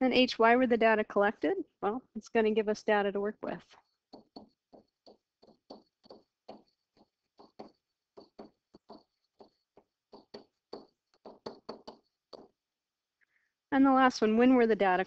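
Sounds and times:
stylus tapping on tablet: 3.6 - 12.7.

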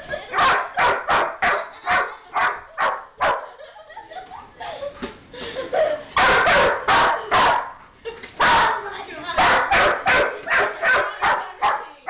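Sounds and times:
dog barking: 0.4 - 3.5, 6.2 - 7.8, 9.4 - 11.9.

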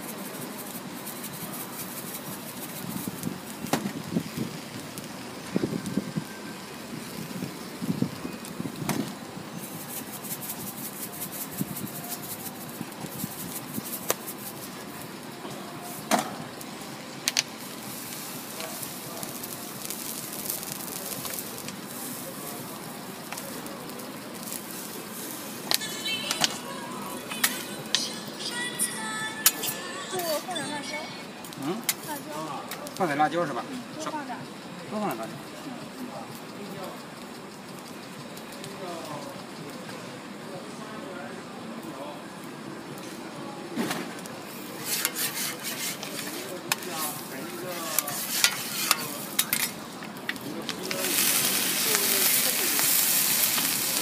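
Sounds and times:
batter sizzling on griddle: 0.0 - 54.0
metal spatula tapping griddle: 48.2 - 49.7.

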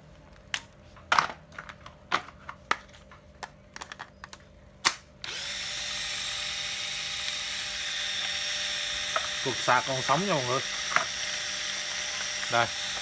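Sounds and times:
drill motor running: 5.2 - 13.0.

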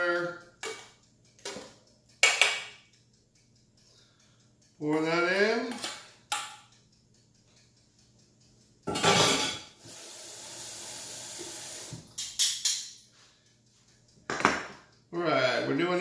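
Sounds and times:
metal dishes knocking: 1.4 - 2.7, 8.9 - 9.6, 14.3 - 14.8
faucet water running: 9.8 - 12.2.

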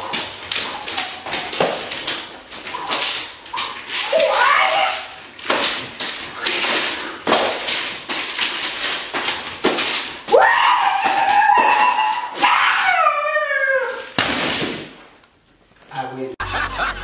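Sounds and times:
high-pitched howling yell: 4.0 - 5.2, 10.3 - 14.1.

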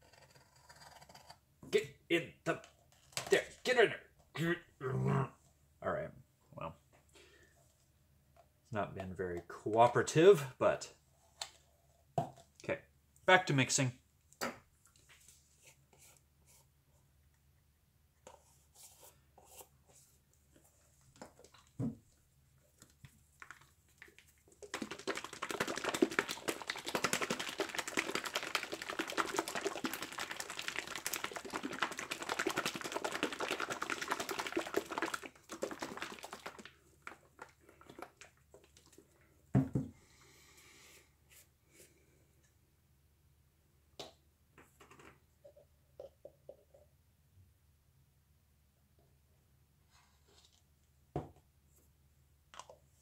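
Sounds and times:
paint jar shaken rattling: 22.8 - 39.0.

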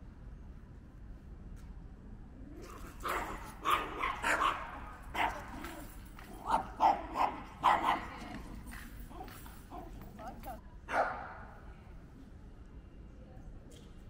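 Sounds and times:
small dog barking: 2.6 - 8.4, 9.7 - 11.3.

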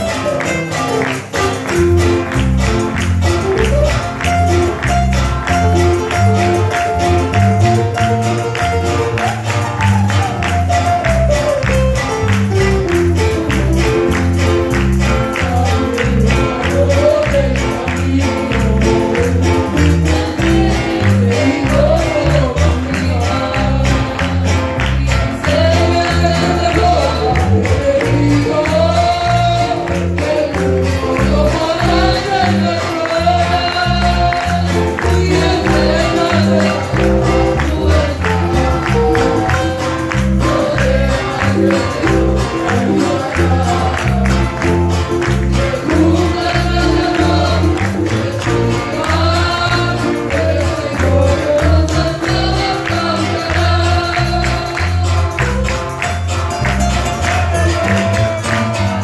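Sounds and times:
bass: 0.0 - 59.0
congregation clapping along: 0.0 - 59.0
hand percussion beat: 0.0 - 59.0
voices singing worship song: 14.1 - 55.6.

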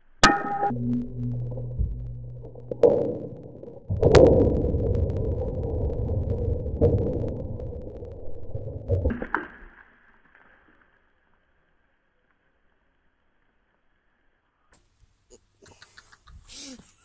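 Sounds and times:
rumble of falling debris: 0.2 - 11.6.

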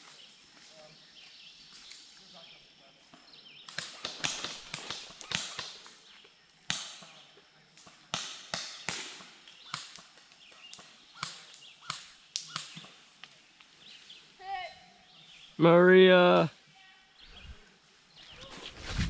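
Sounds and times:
footsteps crunching dry leaves: 18.2 - 19.0.

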